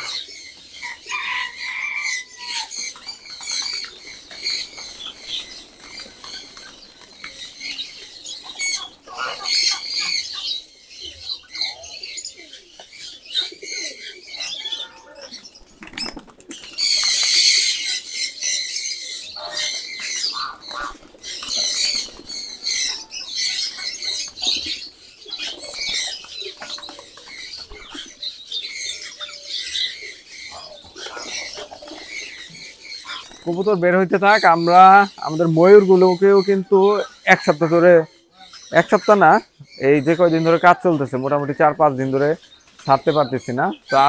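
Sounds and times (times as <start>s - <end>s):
pigeons flapping wings: 2.9s - 10.2s, 15.5s - 17.8s, 19.8s - 28.1s, 30.8s - 32.4s, 33.1s - 33.6s.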